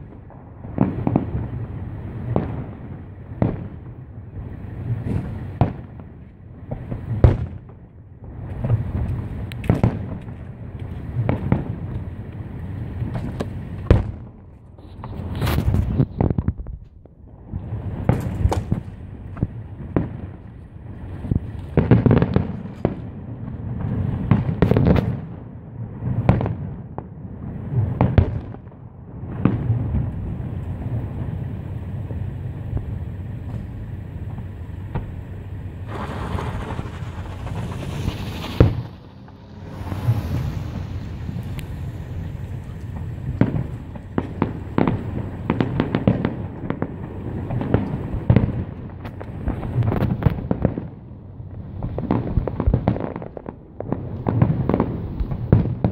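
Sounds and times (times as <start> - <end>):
firework shell bursts booming: 35.8 - 46.3
rapid crackling pops: 35.9 - 46.4.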